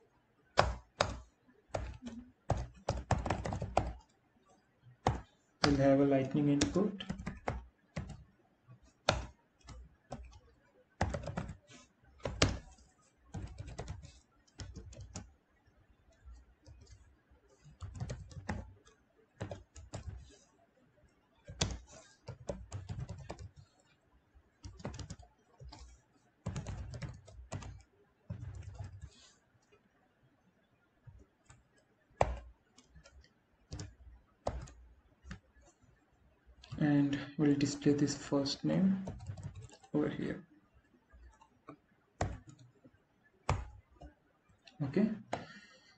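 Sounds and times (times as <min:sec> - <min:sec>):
keyboard key clicks: 0:32.2 - 0:35.4.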